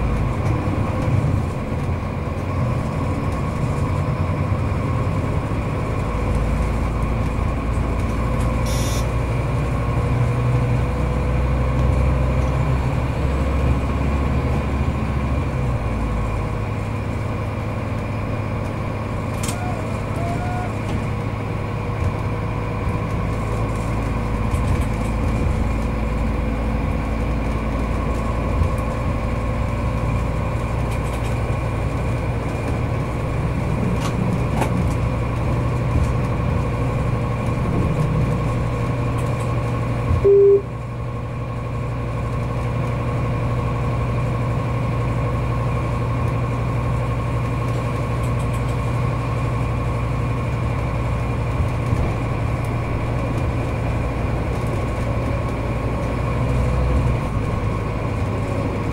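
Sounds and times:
diesel railcar engine drone: 0.0 - 58.9
train wheels on track: 0.0 - 58.9
faint clicks from rails: 5.9 - 9.1, 17.9 - 19.7, 22.0 - 40.2, 46.2 - 49.6
short loud beep: 8.7 - 9.1, 40.2 - 40.7.

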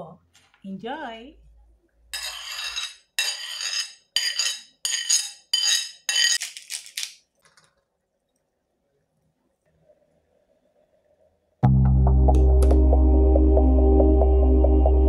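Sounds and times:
spoon clinking on ceramic plate: 2.2 - 7.0.

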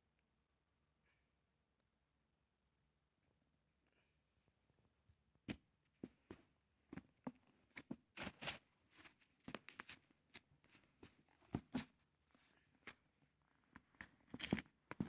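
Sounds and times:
book pages flicking and rustling: 7.7 - 10.1.

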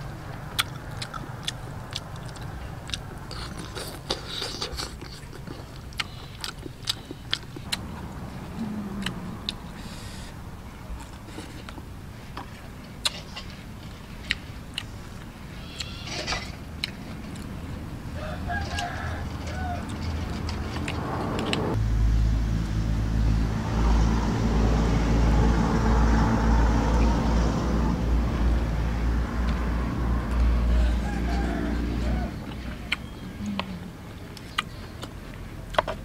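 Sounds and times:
low engine drone: 5.6 - 15.4, 19.3 - 35.9
rooster crowing: 18.1 - 20.2, 30.6 - 32.5.

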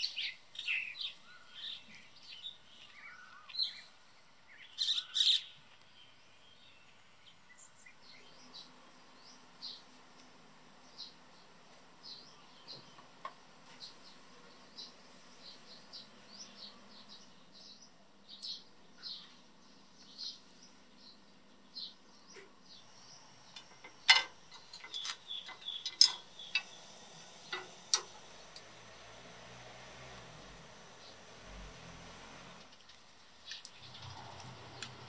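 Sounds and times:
small birds chirping: 0.0 - 35.0
sharp clicks and knocks: 23.5 - 26.7, 27.5 - 28.7.

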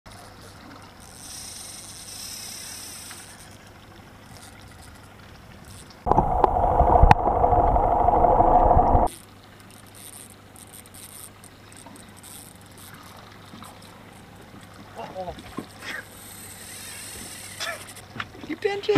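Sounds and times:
low steady hum: 6.1 - 9.1
muffled underwater rushing: 6.1 - 9.1.

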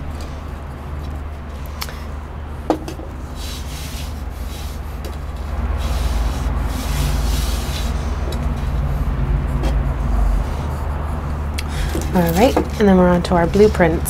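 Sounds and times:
low hum: 0.0 - 14.0
hands rubbing soil on glass: 3.2 - 14.0.

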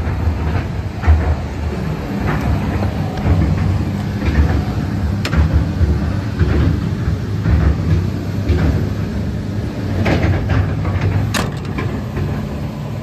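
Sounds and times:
excavator diesel engine idling: 0.0 - 13.0.

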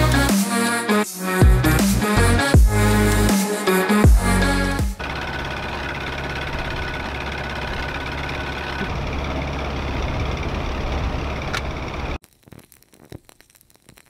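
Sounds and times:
outboard motor running: 4.2 - 12.2.

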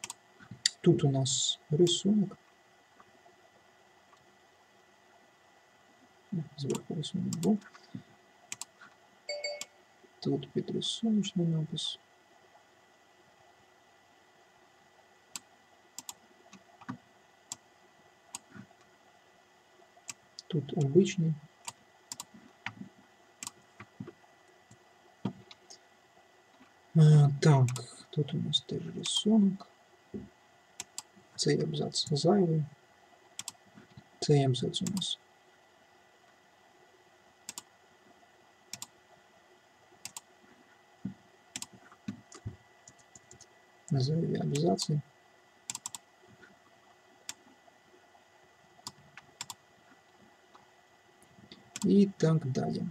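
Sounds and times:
computer mouse clicking: 0.0 - 0.8, 6.6 - 7.8, 8.5 - 8.8, 15.3 - 17.6, 21.6 - 22.8, 23.4 - 23.9, 27.7 - 27.9, 30.8 - 31.1, 33.4 - 33.6, 37.5 - 37.7, 38.7 - 38.9, 40.0 - 40.3, 41.5 - 43.5, 45.7 - 46.1, 48.8 - 49.6, 51.5 - 52.0.

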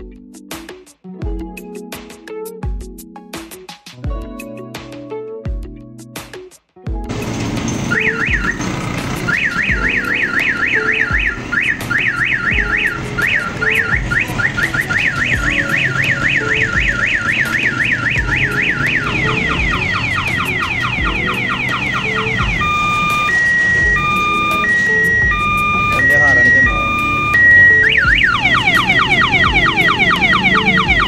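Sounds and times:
electronic siren warbling and yelping: 7.8 - 31.0.

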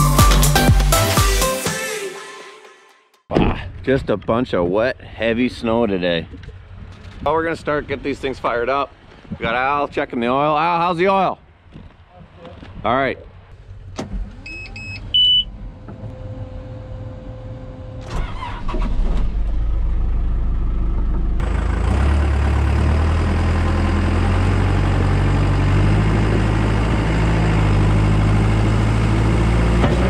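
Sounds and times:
diesel engine cranking: 13.6 - 30.0
short electronic beeps: 14.4 - 15.5
diesel engine idling: 19.6 - 30.0.

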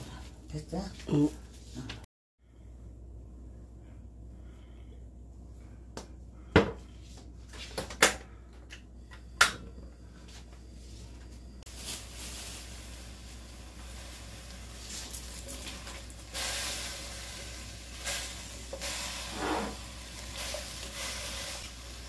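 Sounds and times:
gas burner hissing: 11.7 - 22.0.

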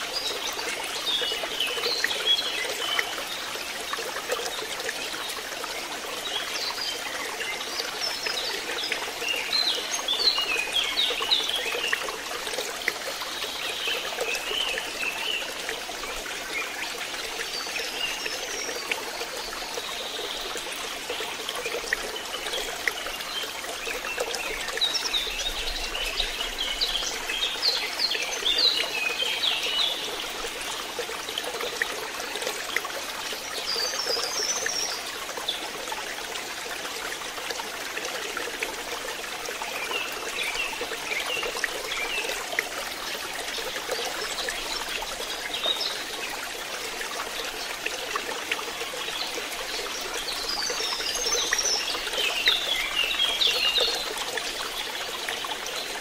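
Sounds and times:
songbirds chirping: 0.0 - 36.4.

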